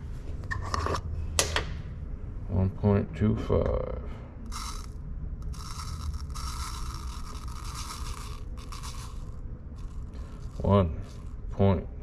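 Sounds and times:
dry yeast being scooped: 4.5s - 11.4s.

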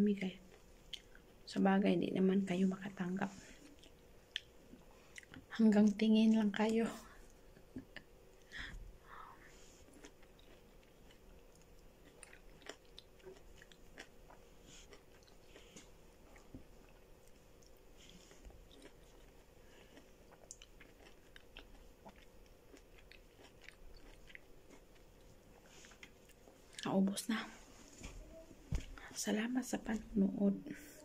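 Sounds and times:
person chewing: 0.5s - 1.4s, 3.5s - 5.5s, 7.2s - 26.9s.

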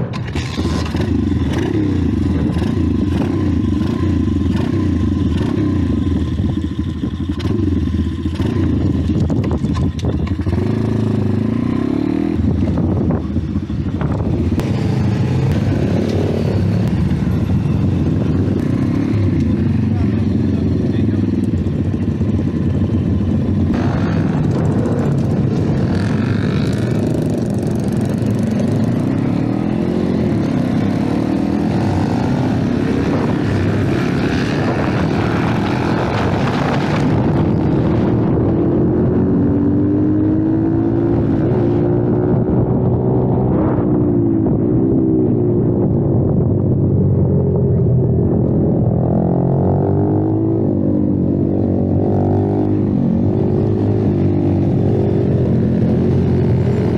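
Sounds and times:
pit bike engine running hard: 0.4s - 42.9s.

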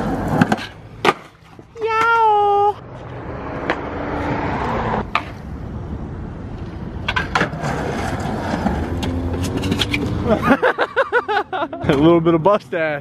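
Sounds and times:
skateboard clacks: 0.0s - 2.1s, 7.0s - 10.0s
skateboard wheels rolling on concrete: 0.0s - 13.0s.

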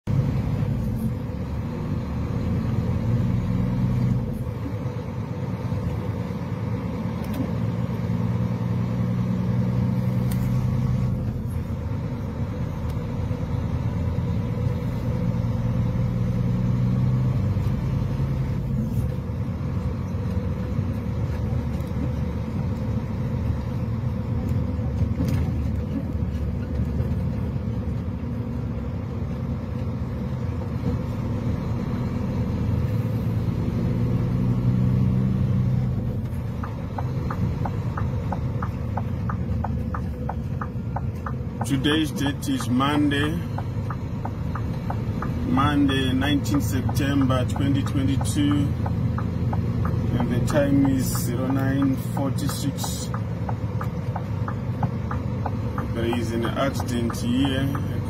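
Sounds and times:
heavy vehicle engine drone: 0.0s - 58.0s.

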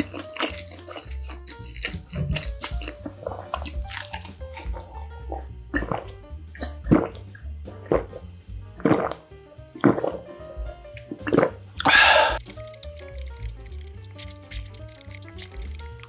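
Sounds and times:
person gulping water: 0.0s - 10.3s, 11.0s - 12.5s
background music: 0.0s - 16.0s.

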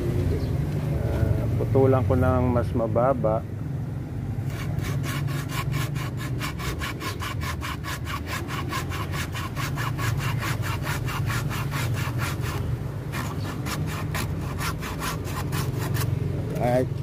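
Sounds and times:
hand saw cutting branch: 4.4s - 16.8s.

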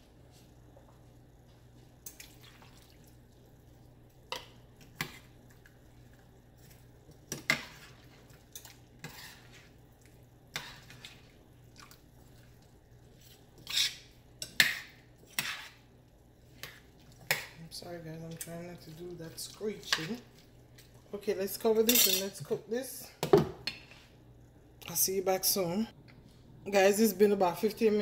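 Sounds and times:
metal spoon scraping pot: 9.0s - 9.6s, 13.2s - 14.6s, 15.3s - 15.8s.

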